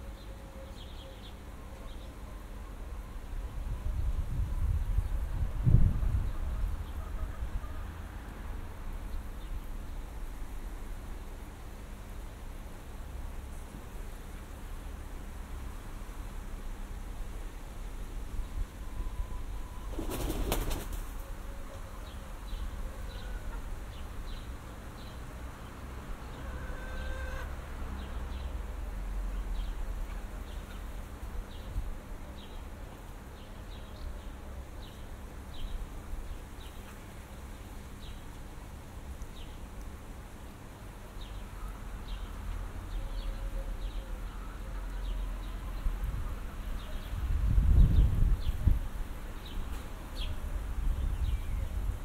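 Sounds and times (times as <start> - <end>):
wind rumble on microphone: 3.2 - 7.8, 45.6 - 52.0.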